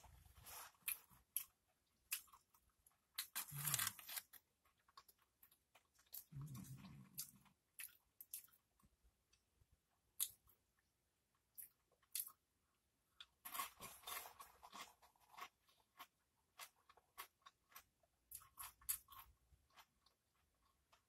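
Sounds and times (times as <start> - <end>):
tortilla chip crunching: 3.2 - 4.4.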